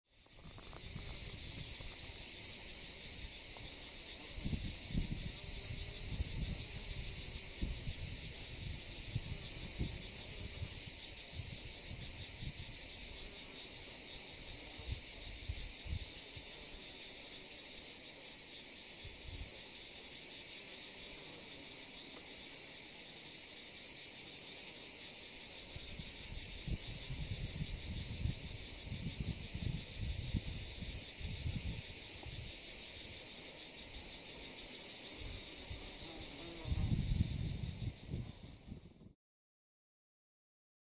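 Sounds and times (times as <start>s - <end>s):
insects chirring: 0.1s - 39.1s
wind gusts: 0.3s - 13.3s, 25.7s - 33.2s, 35.2s - 39.1s.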